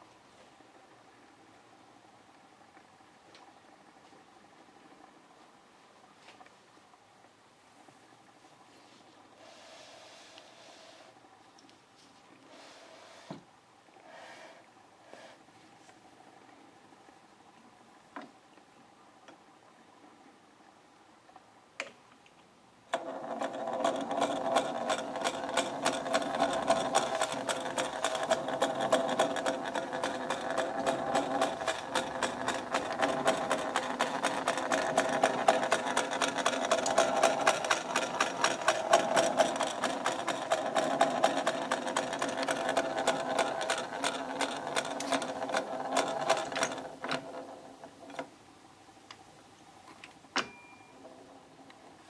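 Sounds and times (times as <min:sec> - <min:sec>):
film projector clatter: 0:22.9 - 0:48.3
projector whirring hum: 0:22.9 - 0:52.0.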